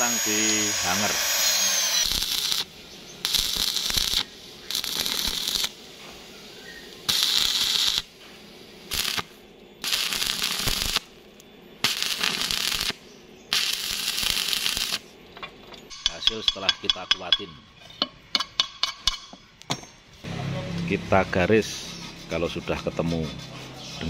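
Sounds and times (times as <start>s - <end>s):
arc welding crackle: 0.0s - 15.1s.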